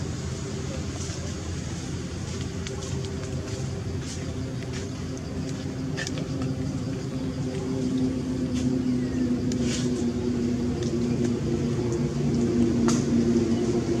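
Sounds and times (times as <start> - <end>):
engine humming: 0.0 - 14.0
faint high ticks: 9.4 - 10.0.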